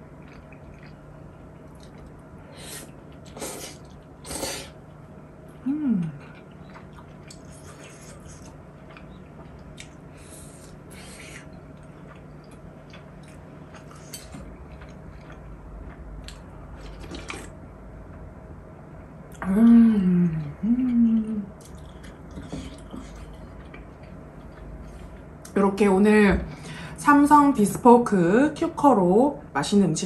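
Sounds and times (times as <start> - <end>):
low steady hum: 0.0 - 30.0
slurping broth: 2.6 - 4.8.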